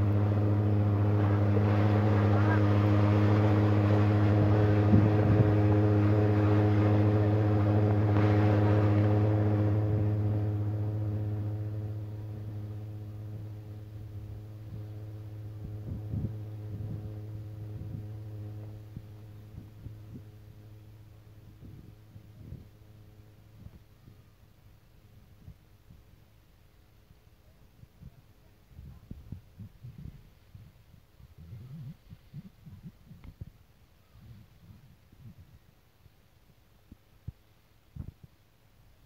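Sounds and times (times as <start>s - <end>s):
boat engine humming: 0.0s - 25.1s.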